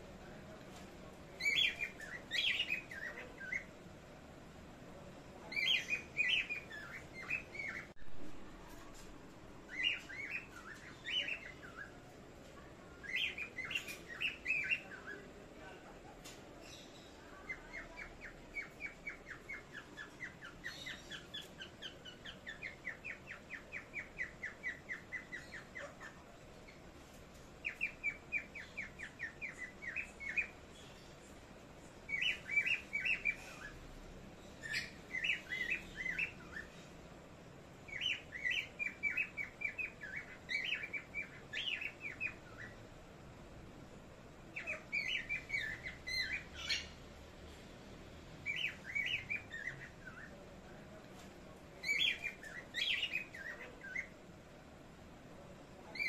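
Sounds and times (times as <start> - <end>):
small parrots chirping: 1.4 - 3.8, 5.4 - 8.0, 9.6 - 12.1, 13.0 - 36.9, 37.8 - 43.0, 44.4 - 47.2, 48.1 - 50.8, 51.8 - 54.7.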